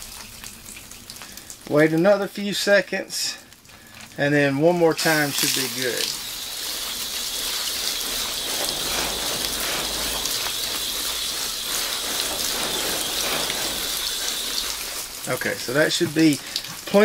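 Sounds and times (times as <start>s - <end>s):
hose spraying water: 3.3s - 17.0s
water pattering on soil: 3.5s - 17.0s.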